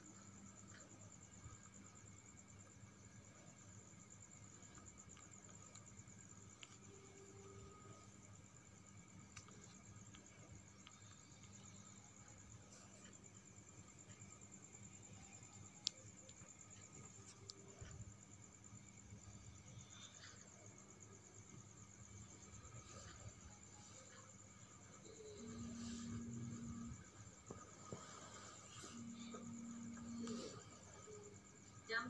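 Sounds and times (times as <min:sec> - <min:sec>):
low steady hum: 0:00.0 - 0:32.0
click: 0:09.3 - 0:10.2, 0:15.7 - 0:16.4.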